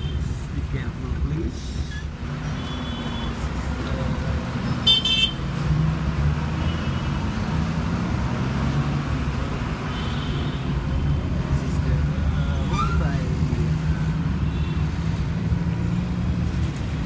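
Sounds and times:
vehicle rumble from inside: 10.8 - 17.0.

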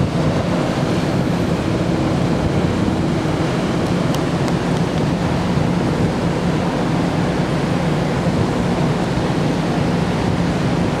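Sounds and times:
rush of wind and water: 0.0 - 11.0
ship engine low hum: 0.0 - 11.0.

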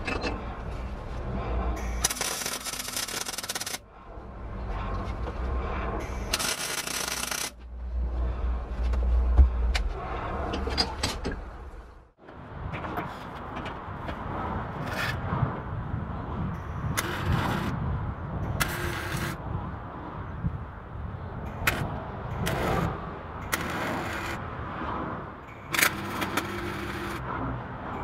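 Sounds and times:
welding arc crackle and hiss: 2.0 - 3.8.

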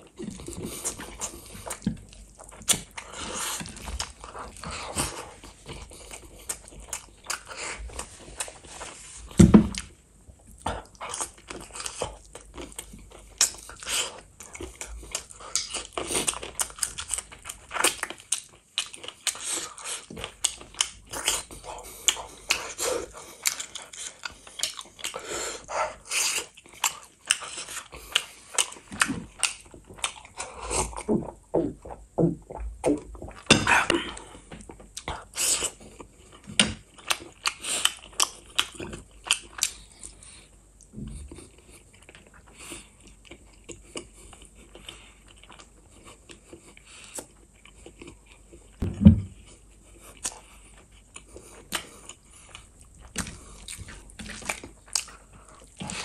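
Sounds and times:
wet chewing and lip-smacking: 0.0 - 8.9, 9.7 - 48.8, 49.4 - 56.0
low thump: 48.8 - 49.4.

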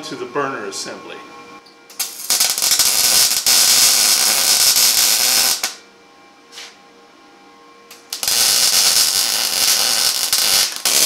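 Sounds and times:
arc welding crackling hiss: 1.9 - 5.8, 7.9 - 11.0.

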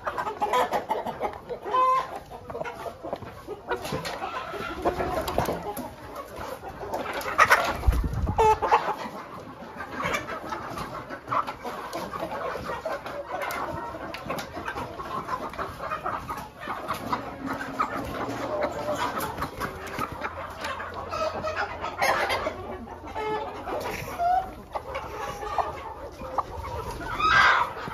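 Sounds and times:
chickens clucking: 0.0 - 27.9.

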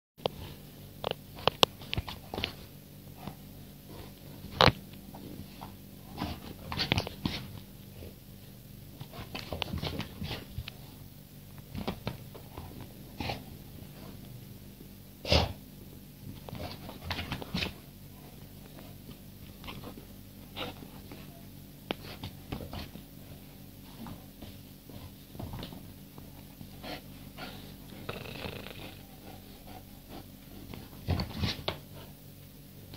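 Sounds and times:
steady low hum: 0.2 - 32.9
dog snorting and sniffing: 12.6 - 14.2, 15.2 - 15.6, 26.7 - 32.2.

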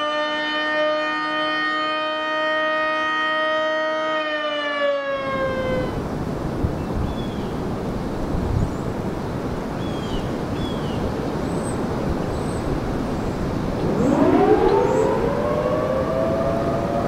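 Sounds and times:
warning siren winding up: 0.0 - 6.0, 13.8 - 17.0
wind rushing over microphone: 5.1 - 17.0.

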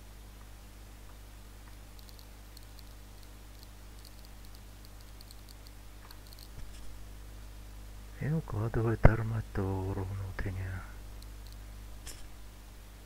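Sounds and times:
low electrical hum: 0.0 - 13.0
computer mouse clicks: 1.7 - 6.9, 11.2 - 12.3.

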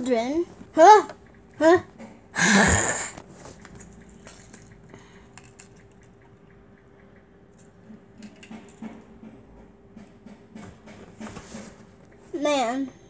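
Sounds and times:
steady low hum: 0.0 - 13.0
small objects clicking: 3.6 - 6.6.

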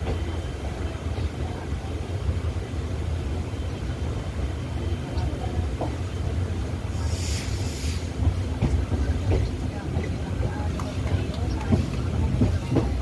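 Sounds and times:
train rumbling on rails: 0.0 - 13.0
brief hiss: 7.0 - 8.2.

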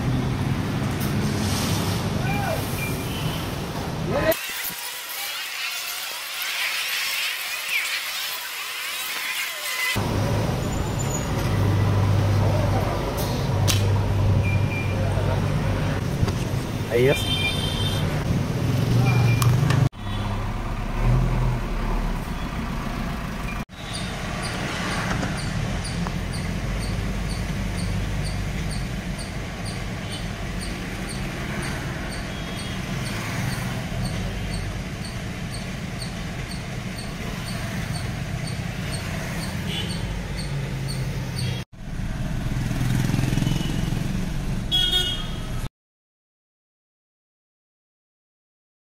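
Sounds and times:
diesel engine idling: 21.6 - 23.6.

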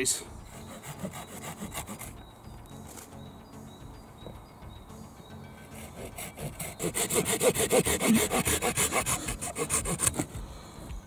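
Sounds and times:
hand saw cutting wood: 0.4 - 2.2, 5.7 - 10.4.

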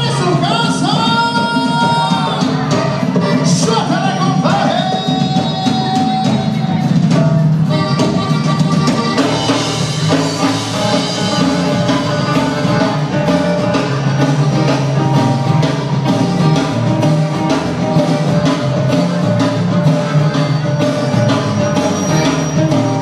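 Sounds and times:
drum kit beat: 0.0 - 23.0
guitar: 0.0 - 23.0
live band playing dance music: 0.0 - 23.0.

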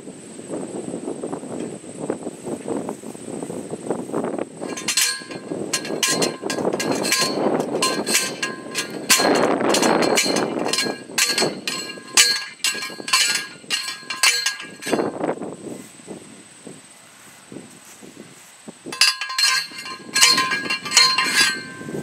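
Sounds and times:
post driver ringing metal clangs: 4.6 - 15.2, 18.9 - 22.0.

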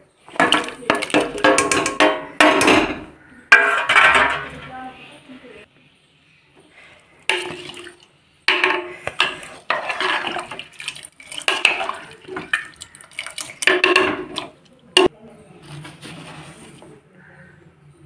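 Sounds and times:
water sloshing: 0.0 - 3.0, 7.2 - 15.1
spoon knocking and scraping pot: 0.3 - 4.6, 7.3 - 7.8, 8.5 - 15.1.

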